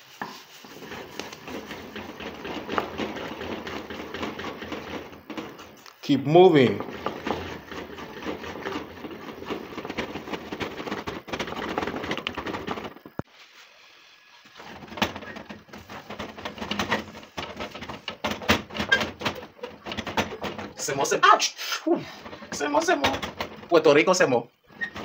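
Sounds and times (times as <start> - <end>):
wooden spatula scraping a metal pot: 0.0 - 13.2, 24.7 - 25.0
dough being knocked and pressed: 0.2 - 5.8.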